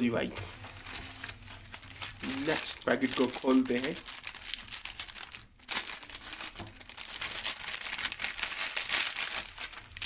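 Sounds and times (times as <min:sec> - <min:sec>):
plastic snack packet crinkling: 0:00.2 - 0:10.0.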